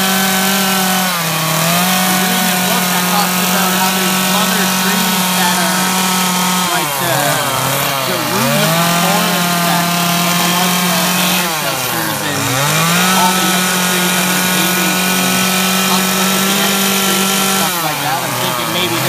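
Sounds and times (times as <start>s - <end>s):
chainsaw cutting wood: 0.0s - 19.0s.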